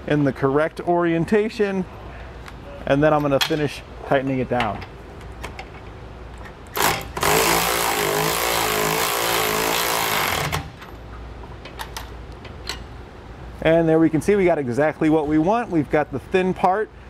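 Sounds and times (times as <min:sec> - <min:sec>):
power tool running down nut: 0:06.8 - 0:10.6.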